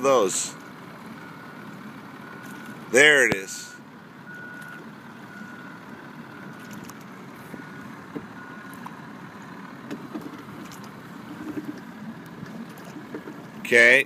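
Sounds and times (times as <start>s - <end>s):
oars knocking in oarlocks: 9.8s - 13.6s
oar splashes: 10.3s - 13.7s.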